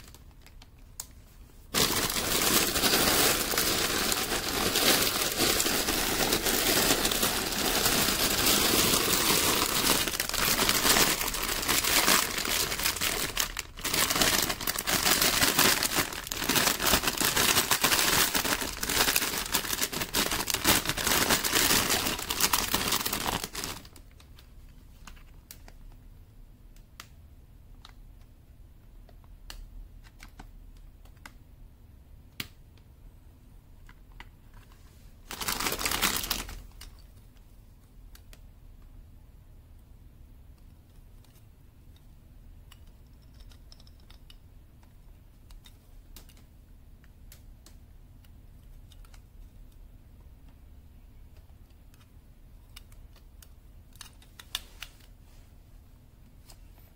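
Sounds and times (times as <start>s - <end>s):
plastic bags crinkling: 0.0s - 0.7s, 1.7s - 24.2s, 35.2s - 37.0s.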